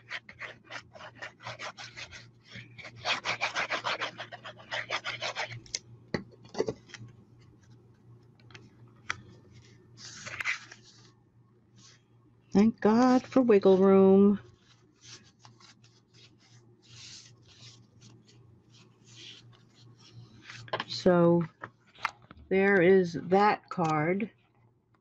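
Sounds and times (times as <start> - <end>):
paper rubbing on paper: 0.0 - 5.6, 14.5 - 20.7
tape runner scratching on cardstock: 2.9 - 5.6.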